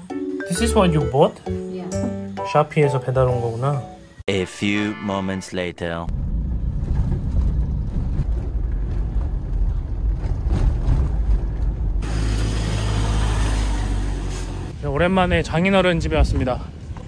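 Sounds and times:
road and engine rumble in car: 6.1s - 14.8s.

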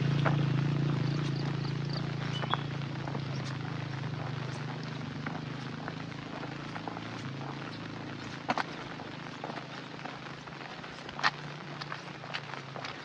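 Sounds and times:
low engine hum: 0.0s - 13.0s
rain falling: 0.0s - 13.0s.

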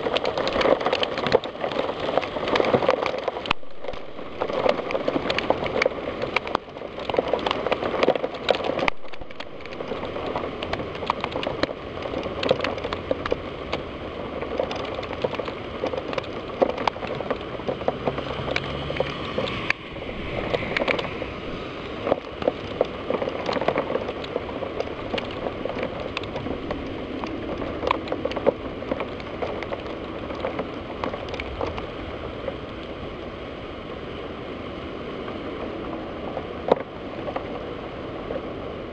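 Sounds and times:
raindrops hitting window glass: 0.0s - 38.9s
steady hiss of rainfall: 0.0s - 38.9s.

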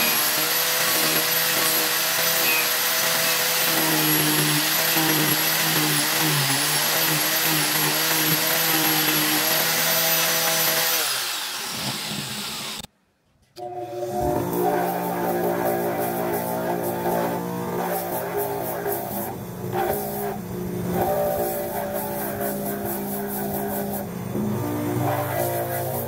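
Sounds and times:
power sander sanding wood: 0.0s - 12.9s, 14.0s - 26.0s
guitar music: 13.6s - 26.0s.

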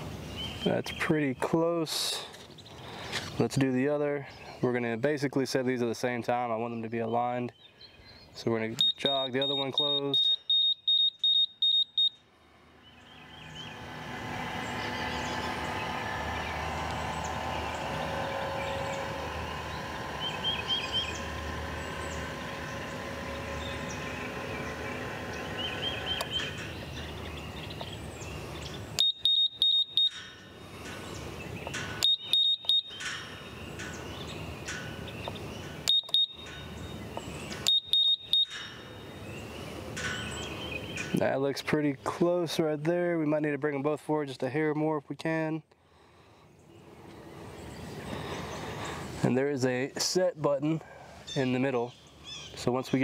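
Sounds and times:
rapid high beeps: 8.8s - 12.2s, 29.0s - 30.2s, 32.0s - 33.0s, 35.9s - 36.5s, 37.7s - 38.6s
gate actuator motor running: 13.0s - 31.0s, 31.6s - 39.0s.

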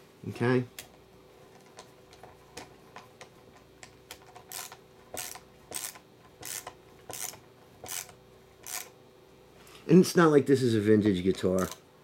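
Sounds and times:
screwdriver scraping strokes: 4.5s - 8.9s.

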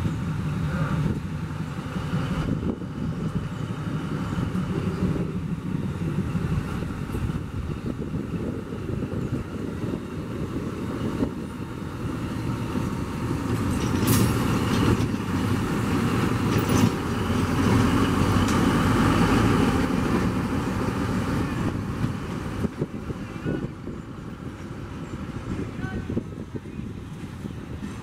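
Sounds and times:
diesel locomotive rolling past: 0.0s - 28.0s.

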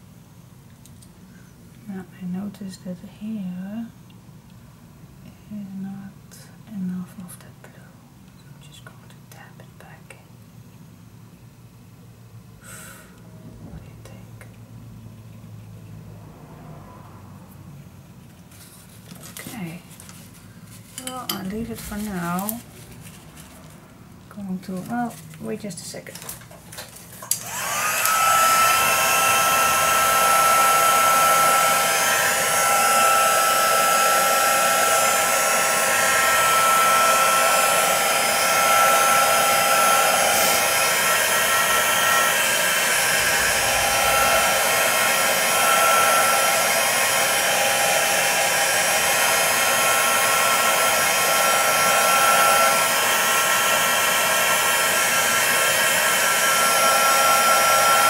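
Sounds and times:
heat tool motor whine: 27.2s - 58.0s
rush of blown air: 40.9s - 46.6s.

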